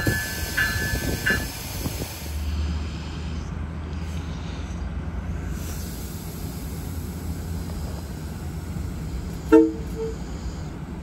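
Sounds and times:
train rumbling: 0.0 - 11.0
train horn toot: 9.5 - 10.3.

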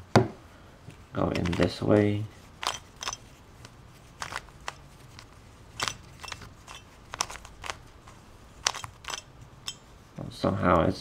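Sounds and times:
plastic puzzle cube clicking: 7.1 - 7.8.

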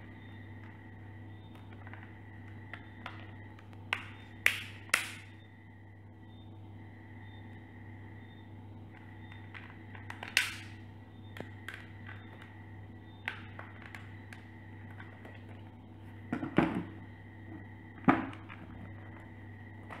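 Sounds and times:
low electrical hum: 0.0 - 20.0.

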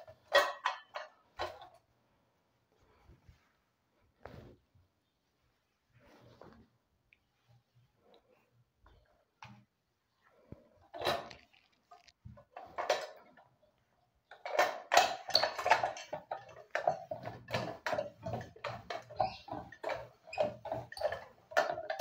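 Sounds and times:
iron scraping and knocking: 14.4 - 22.0.

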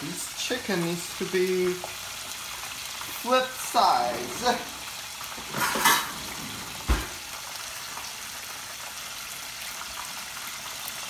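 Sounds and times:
deep-frying oil sizzling: 0.0 - 11.0
tongs clattering in drawer: 5.4 - 6.5.

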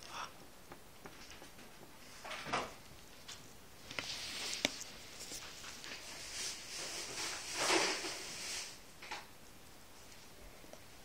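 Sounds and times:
puppy rustling on a rug: 2.9 - 8.8.

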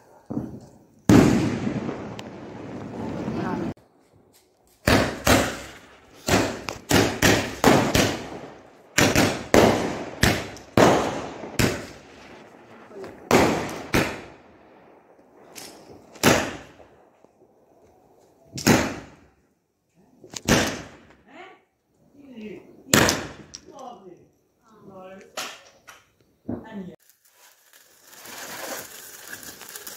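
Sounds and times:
fireworks banging with echo: 0.0 - 3.8, 4.8 - 17.3, 18.5 - 19.3, 20.4 - 21.2, 22.9 - 23.8.

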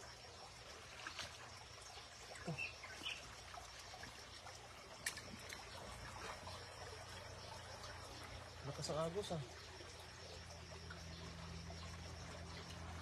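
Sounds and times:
small water splashes: 0.0 - 13.0
stream water trickling: 0.0 - 13.0.

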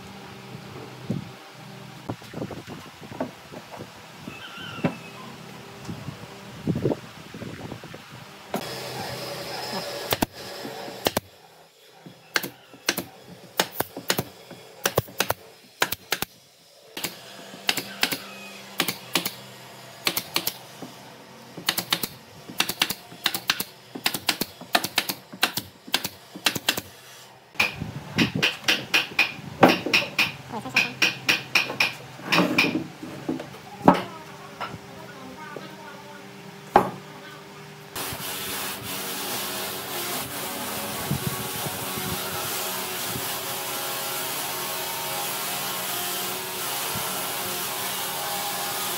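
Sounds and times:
nail gun shots into wood: 12.4 - 16.3, 17.0 - 18.2, 18.8 - 19.4, 20.0 - 20.6, 21.6 - 26.9.

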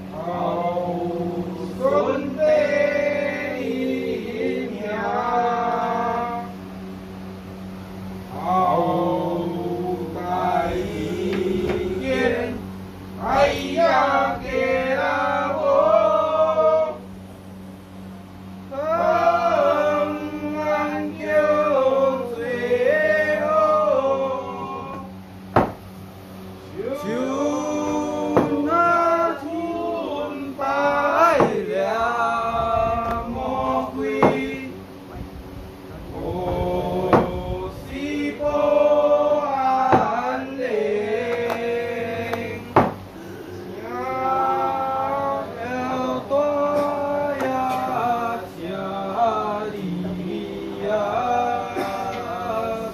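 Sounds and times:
voices singing a chant: 0.0 - 7.0, 8.1 - 17.3, 18.5 - 25.8, 26.6 - 34.9, 35.9 - 52.9
steady low hum: 0.0 - 52.9
sharp loud knocks: 25.5 - 25.8, 31.4 - 31.6, 34.2 - 34.5, 37.1 - 37.4, 42.8 - 43.0.

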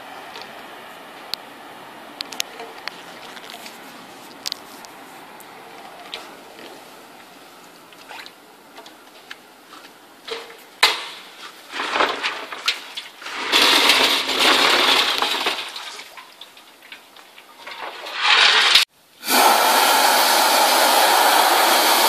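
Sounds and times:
metal clanking and rattling: 10.3 - 18.8
vacuum cleaner rushing noise: 18.2 - 22.0.

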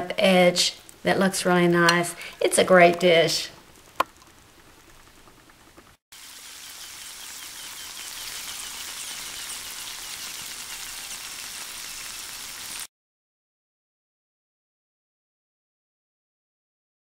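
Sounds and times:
food sizzling in dish: 0.5 - 12.9.

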